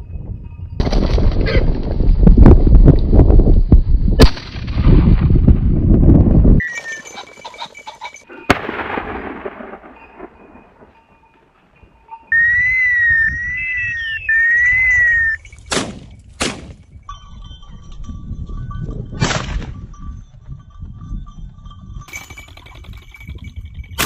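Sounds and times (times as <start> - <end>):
shotgun shots: 8.5 - 10.4, 15.7 - 16.8
warbling whistle: 12.3 - 15.5.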